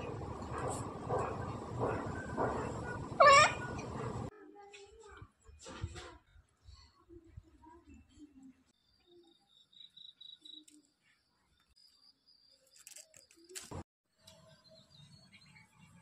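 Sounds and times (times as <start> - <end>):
bird chirps: 8.8 - 13.6.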